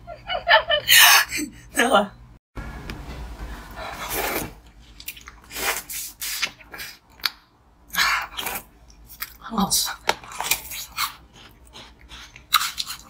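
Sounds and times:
biting and chewing treat: 10.0s - 13.0s.

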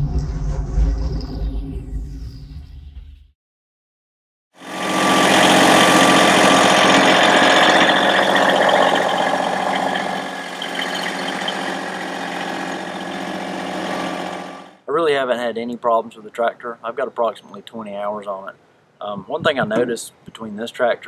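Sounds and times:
tractor diesel engine running: 4.6s - 14.8s.

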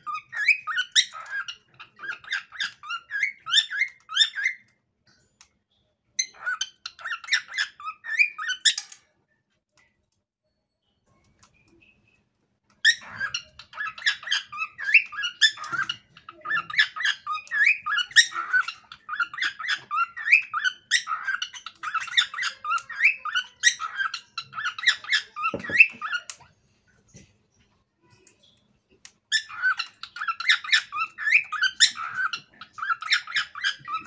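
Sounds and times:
cockatiel chirping and whistling: 0.0s - 4.7s, 6.2s - 8.8s, 12.8s - 26.4s, 29.3s - 34.0s.

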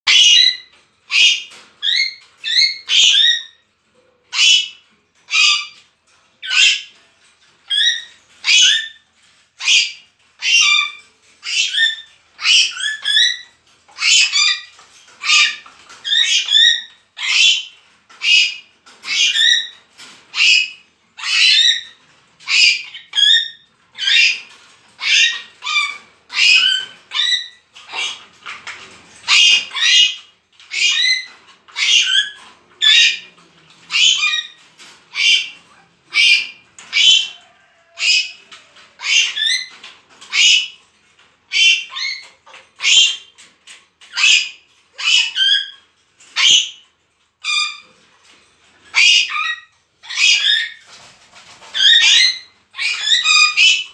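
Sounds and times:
parrots squawking: 0.1s - 3.7s, 4.3s - 53.9s.

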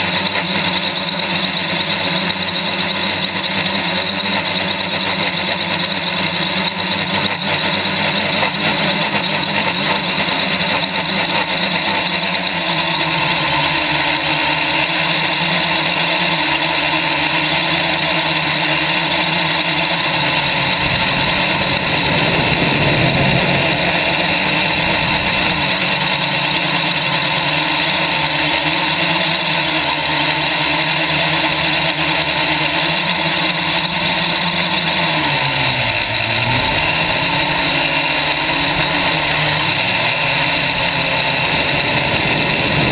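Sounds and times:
drone motors whining: 0.0s - 42.9s
wind noise: 17.8s - 28.2s, 35.9s - 42.9s.

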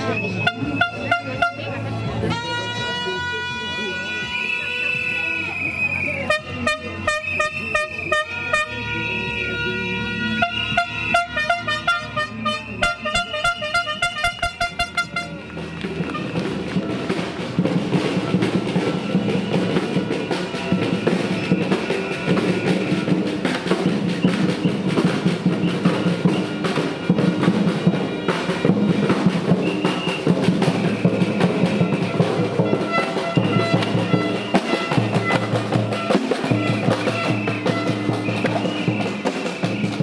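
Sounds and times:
drum beat: 12.8s - 40.0s.

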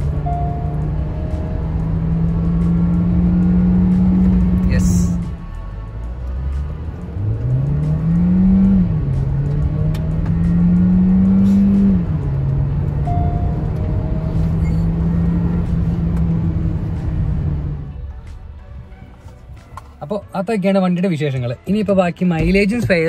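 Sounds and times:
car engine revving hard: 0.0s - 5.4s, 6.3s - 17.8s
gear shifts: 0.0s - 20.1s.

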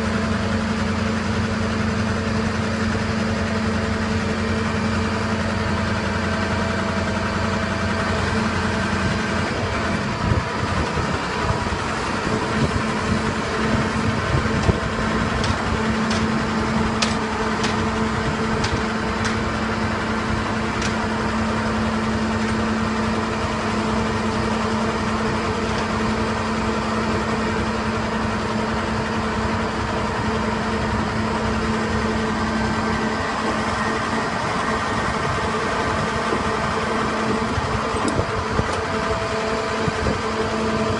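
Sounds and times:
lorry diesel engine running: 0.0s - 40.9s
sharp clicks and knocks: 14.5s - 19.6s, 20.8s - 21.1s.

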